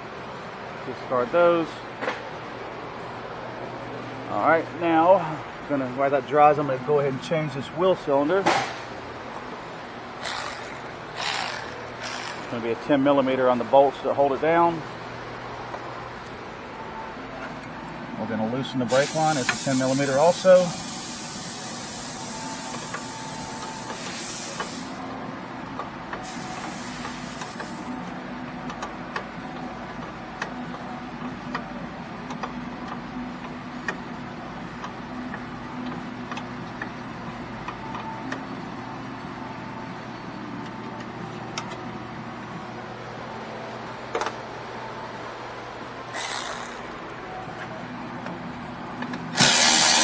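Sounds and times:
low mechanical hum: 0:00.0 - 0:50.0
wrench clicking on metal: 0:10.2 - 0:12.8, 0:46.1 - 0:47.1
hiss: 0:18.9 - 0:23.2, 0:23.8 - 0:25.0, 0:26.2 - 0:27.9.

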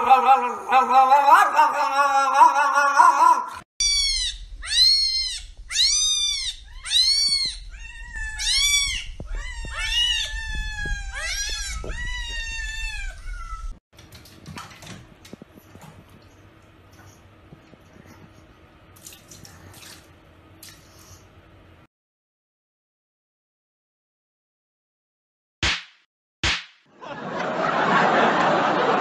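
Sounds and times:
cat meowing: 0:03.8 - 0:13.8
water splashing: 0:14.0 - 0:16.4, 0:19.0 - 0:20.9.

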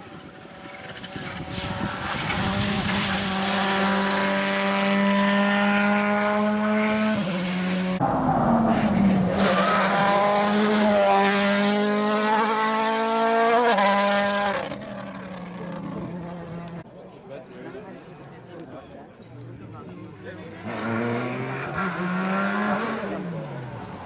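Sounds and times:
car engine revving high: 0:01.5 - 0:16.8, 0:20.6 - 0:24.0.

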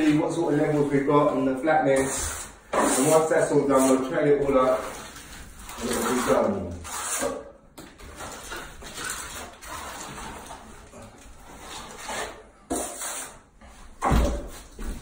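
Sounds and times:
trowel scraping plaster: 0:01.9 - 0:13.5.

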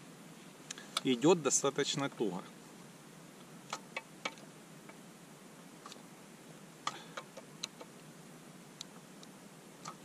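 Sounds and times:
faint steady hiss: 0:00.0 - 0:10.0.

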